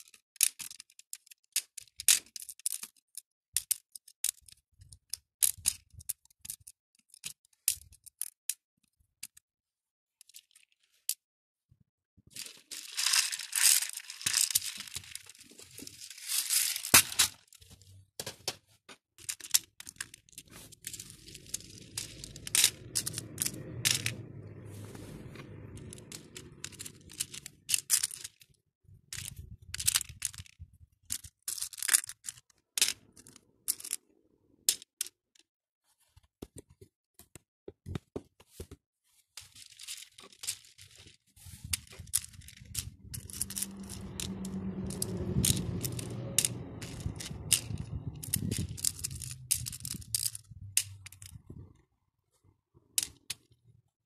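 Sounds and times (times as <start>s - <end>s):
plastic beads clicking and rattling: 0.0s - 8.6s, 10.2s - 11.2s, 12.3s - 17.8s, 19.2s - 34.0s, 39.4s - 51.6s
low rubbing rumble of handling: 20.1s - 28.0s, 41.4s - 51.8s.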